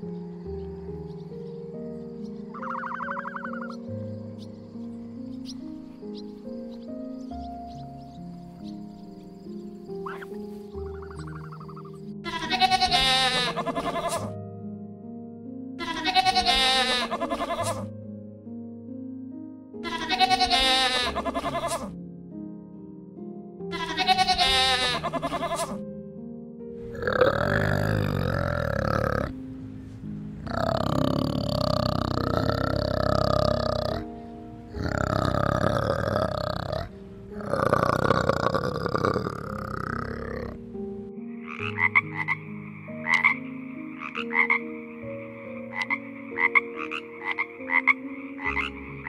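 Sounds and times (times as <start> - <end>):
soft background music: 0.0 - 49.0
frog croaking: 2.3 - 5.6, 7.4 - 14.4, 26.8 - 29.5, 30.3 - 49.0
rough animal call: 2.5 - 3.8, 10.0 - 14.3, 15.8 - 17.9, 19.9 - 21.9, 23.8 - 25.8, 26.8 - 29.3, 30.4 - 34.1, 34.7 - 40.6
goat bleating: 12.2 - 14.3, 15.8 - 17.8, 19.8 - 21.9, 23.7 - 25.8.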